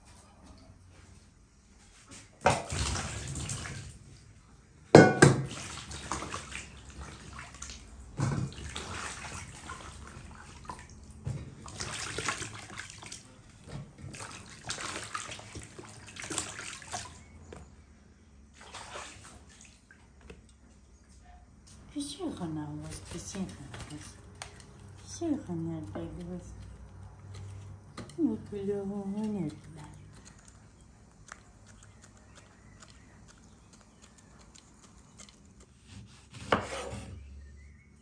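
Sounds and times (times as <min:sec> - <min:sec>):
water splashing and sloshing: 0:00.0 - 0:36.9
knock on metal basin: 0:05.0 - 0:05.5.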